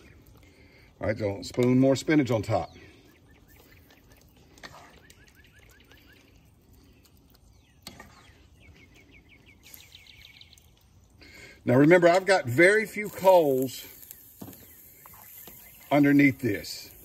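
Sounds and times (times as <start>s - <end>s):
bird chirping: 2.2s - 11.5s, 12.8s - 17.0s.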